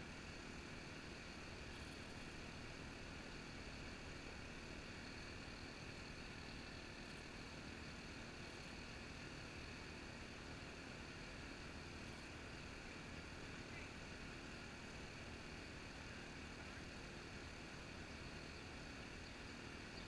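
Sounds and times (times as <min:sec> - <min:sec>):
low hum with hiss: 0:00.0 - 0:20.0.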